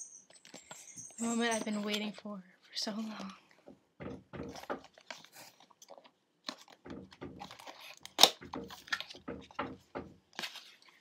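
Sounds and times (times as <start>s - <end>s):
cardboard and plastic rustling: 0.4s - 11.0s.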